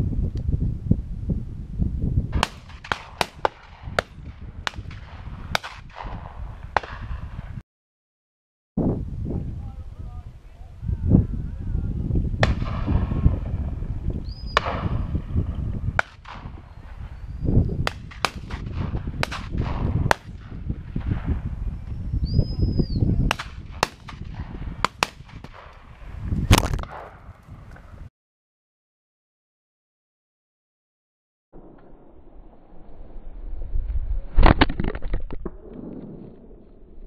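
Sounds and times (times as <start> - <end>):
wind rumble on microphone: 0.0 - 7.6, 8.8 - 28.1, 31.6 - 37.0
shotgun shots: 2.4 - 7.3, 12.4 - 13.2, 14.6 - 15.1, 16.0 - 16.6, 17.8 - 21.3, 23.3 - 25.8.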